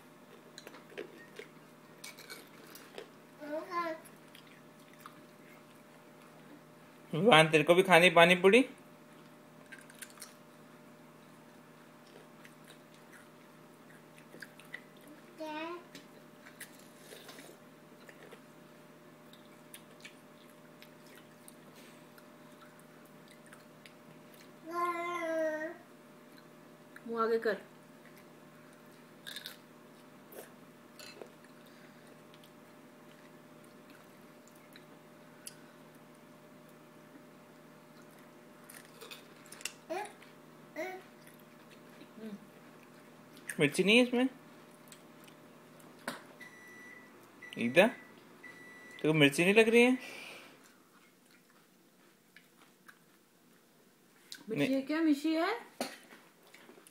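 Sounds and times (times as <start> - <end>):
low room hum: 0.0 - 56.9
child chewing crunchy food: 0.3 - 6.7, 9.1 - 10.5, 11.1 - 25.1, 27.9 - 40.4, 41.0 - 43.6, 44.6 - 46.3, 50.4 - 54.5, 56.0 - 56.9.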